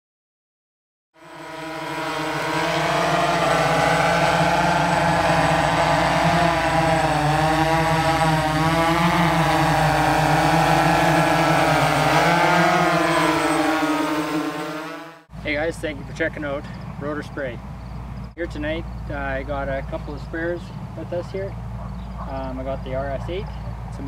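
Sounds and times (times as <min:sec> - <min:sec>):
drone propellers buzzing: 0:01.2 - 0:15.3.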